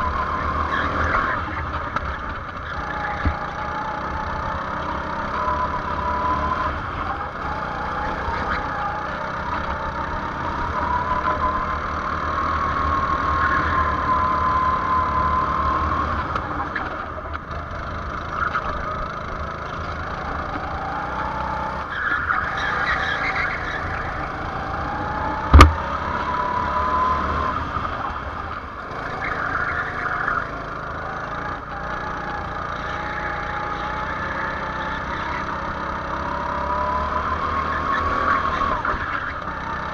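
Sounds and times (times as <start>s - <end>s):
go-kart engine revving: 0.0s - 39.9s
sharp knock: 25.5s - 25.8s.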